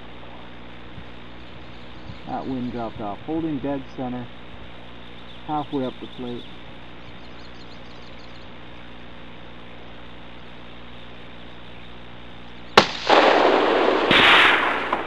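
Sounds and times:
rifle shot: 0:12.8 - 0:15.0.

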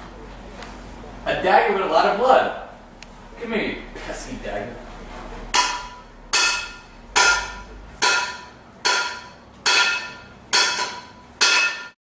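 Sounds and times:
metallic ringing strikes: 0:05.5 - 0:12.0.

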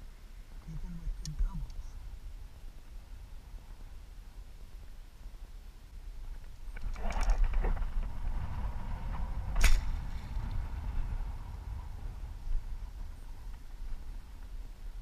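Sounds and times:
rustling and small clicks: 0:06.2 - 0:08.5, 0:09.5 - 0:10.6.

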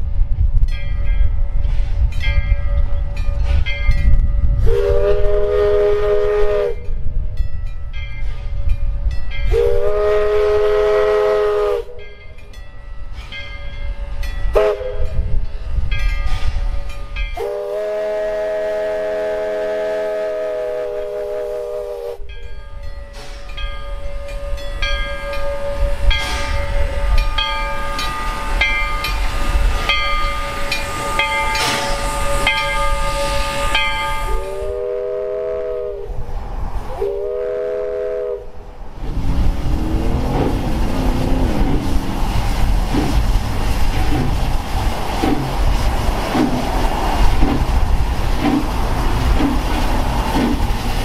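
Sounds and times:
steam locomotive rumbling: 0:00.0 - 0:51.0
steam whistle blasts: 0:04.6 - 0:07.0, 0:09.5 - 0:12.1, 0:14.6 - 0:15.3, 0:17.3 - 0:22.3, 0:24.0 - 0:36.2, 0:36.9 - 0:38.6.

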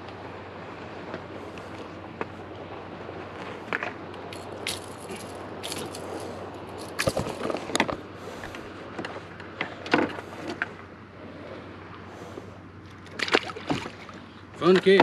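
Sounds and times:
knocks and clicks of gear handled: 0:03.7 - 0:10.7.

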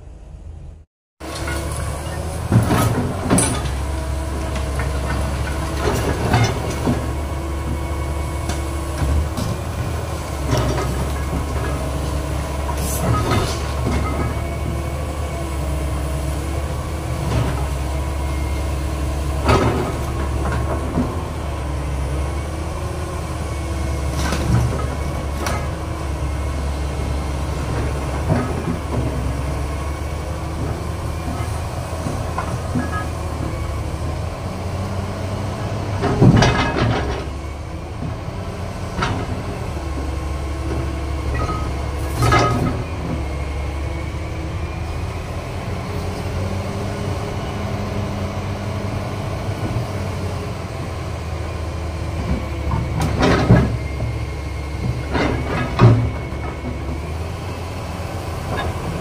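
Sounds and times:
excavator diesel engine running: 0:00.0 - 0:59.0
bucket clanking on scrap iron: 0:10.4 - 0:14.8, 0:30.6 - 0:33.6, 0:36.0 - 0:37.4, 0:41.2 - 0:43.2.

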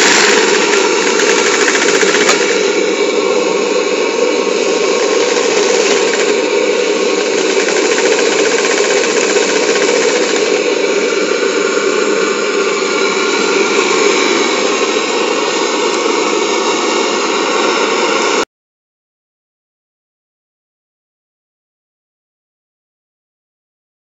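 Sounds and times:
model steam engine clatter and hiss: 0:00.0 - 0:18.4.

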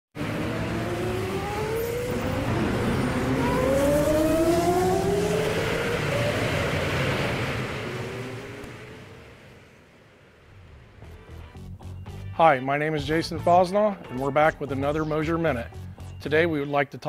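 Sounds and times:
race car engine accelerating: 0:00.1 - 0:11.7.

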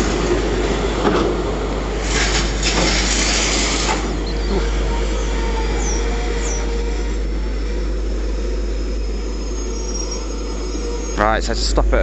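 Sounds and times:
train wheels rumbling on rails: 0:00.0 - 0:12.0
faint high squeal: 0:04.0 - 0:11.4.

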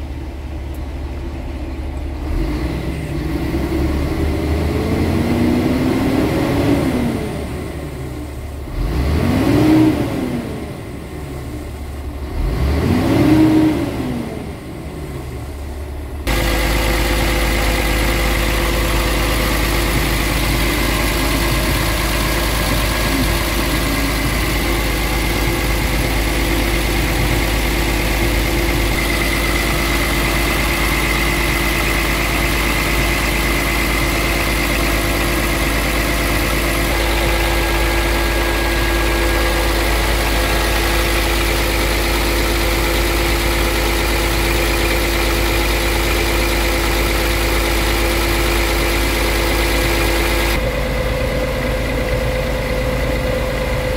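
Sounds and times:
diesel engine idling: 0:00.0 - 0:53.9
diesel engine revving: 0:00.0 - 0:53.9
steady high whine: 0:15.4 - 0:46.2.

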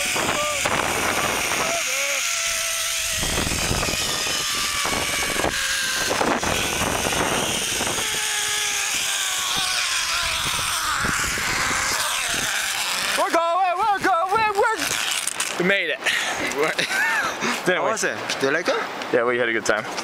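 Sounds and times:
wind buffeting microphone: 0:00.0 - 0:12.9
pulleys whining on steel cable: 0:00.0 - 0:15.5.

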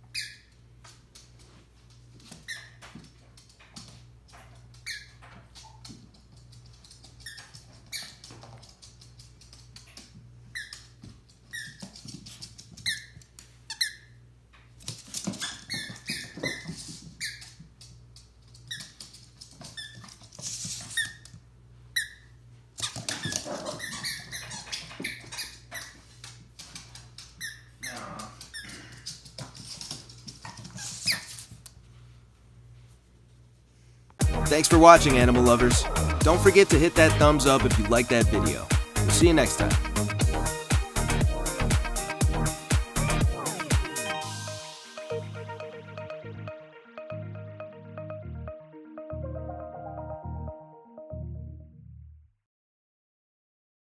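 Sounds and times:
dog paws on wooden floor: 0:00.1 - 0:22.1, 0:22.7 - 0:33.7
rubber squeaky toy squeaking: 0:15.4 - 0:17.5, 0:22.8 - 0:26.0.

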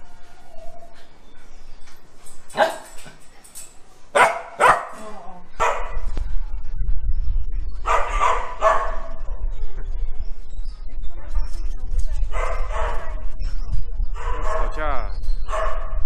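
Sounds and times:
dog barking: 0:02.5 - 0:03.0, 0:04.1 - 0:05.0, 0:05.6 - 0:06.0, 0:07.9 - 0:09.1, 0:12.3 - 0:13.2, 0:14.2 - 0:14.8, 0:15.5 - 0:16.0
low rumble: 0:05.0 - 0:16.0.

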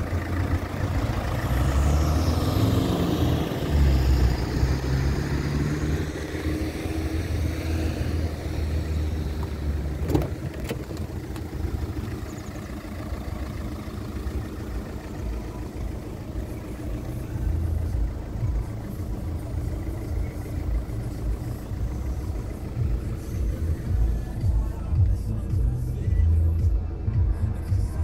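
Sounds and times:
vehicle engine hum: 0:00.0 - 0:28.0.

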